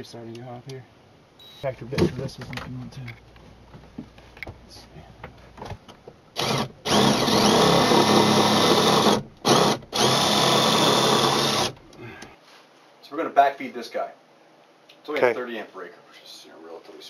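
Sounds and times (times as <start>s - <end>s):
cordless drill boring into wood: 6.4s - 11.8s.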